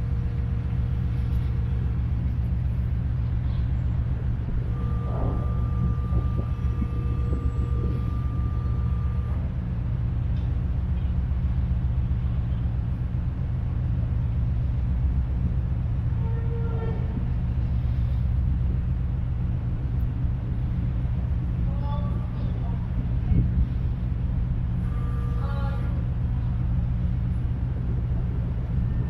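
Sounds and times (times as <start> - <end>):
low engine drone: 0.0 - 29.0
faint high tone: 4.6 - 9.5.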